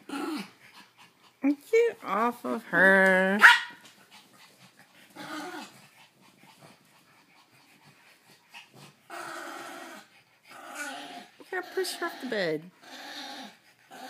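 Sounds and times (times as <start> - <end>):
dog growling: 0.0 - 1.1, 4.6 - 6.8, 8.6 - 14.0.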